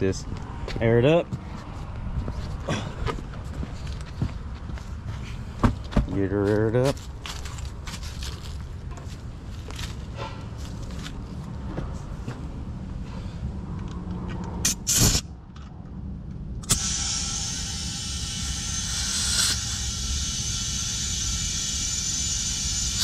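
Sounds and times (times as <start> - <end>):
air compressor running: 14.6 - 15.2, 16.6 - 23.0
air hissing into tire: 14.6 - 15.3, 16.6 - 23.0
loud burst of air: 14.6 - 15.4, 16.6 - 23.0.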